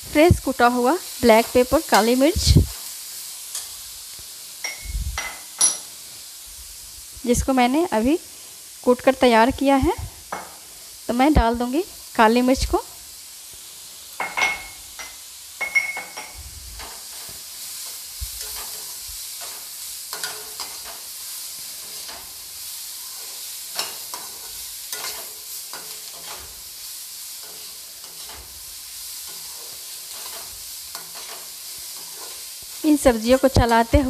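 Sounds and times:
vegetables sizzling: 0.0 - 34.0
spoon stirring and scraping pan: 0.5 - 6.6, 10.2 - 11.5, 13.5 - 34.0
metal clink: 4.6 - 5.9, 14.2 - 16.4.

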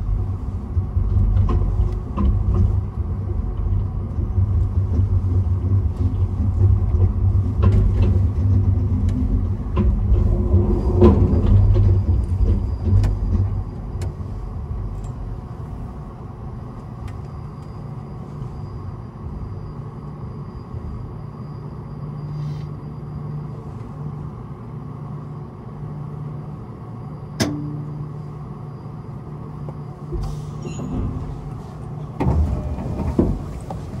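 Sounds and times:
clunk and rumble: 0.0 - 19.4, 27.3 - 28.5, 29.4 - 34.0
low vehicle hum: 0.0 - 34.0.

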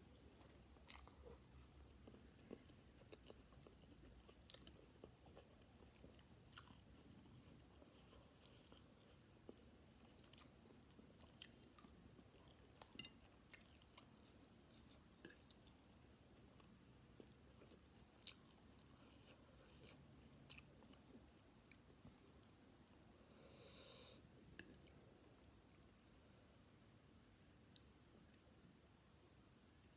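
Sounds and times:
chewing noodles: 0.4 - 23.0.

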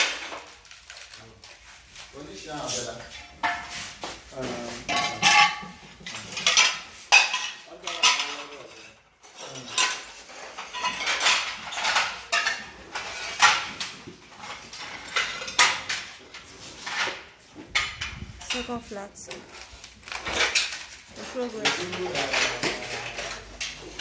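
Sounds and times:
ceramic tile pieces clinking: 4.9 - 8.5.

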